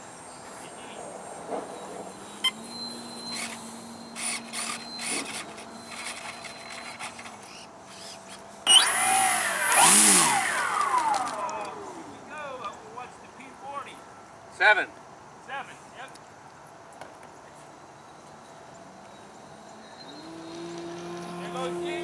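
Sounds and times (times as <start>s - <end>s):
model plane motor whine: 2.3s - 12.2s.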